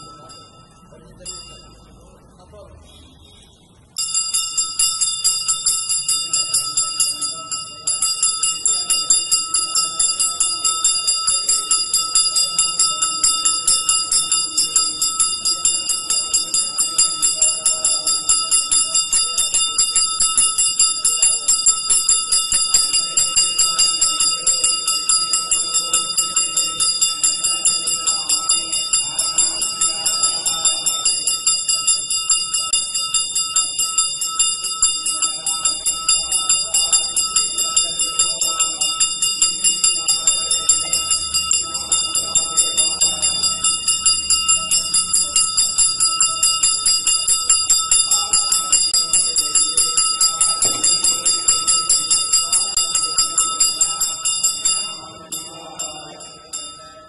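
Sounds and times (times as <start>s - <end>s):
metal bell ringing rapidly: 0.0s - 2.2s, 4.0s - 57.0s.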